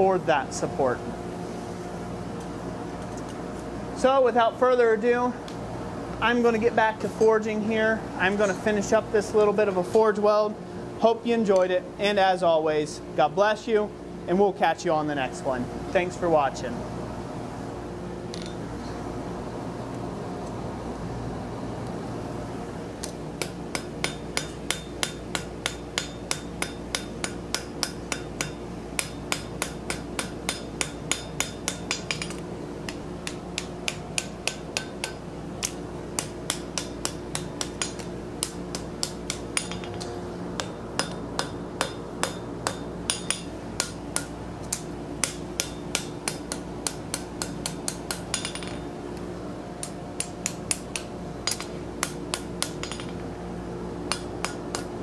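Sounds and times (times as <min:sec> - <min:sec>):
steady hum: 0:00.0 - 0:55.0
hammer striking steel on anvil: 0:23.0 - 0:48.9, 0:49.8 - 0:53.2, 0:54.1 - 0:54.9.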